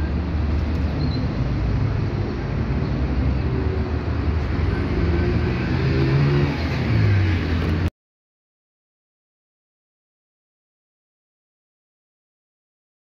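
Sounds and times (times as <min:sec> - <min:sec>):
vehicle engine rumbling: 0:00.0 - 0:07.9.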